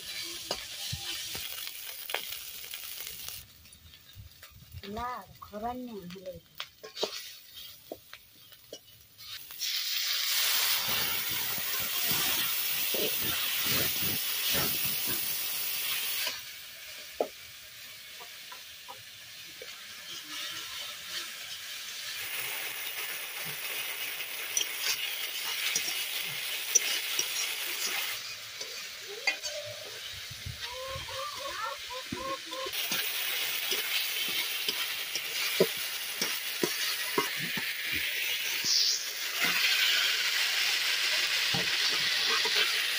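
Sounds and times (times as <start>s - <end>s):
metal spatula scraping a pan: 0.0s - 1.4s, 6.8s - 15.2s, 20.0s - 30.2s, 32.1s - 40.3s, 41.5s - 42.9s
oil sizzling and hissing in a wok: 0.0s - 42.9s.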